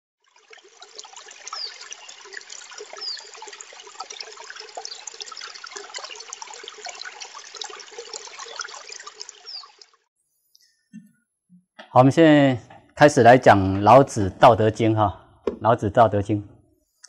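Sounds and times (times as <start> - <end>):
trickling water drips: 0.2 - 10.8.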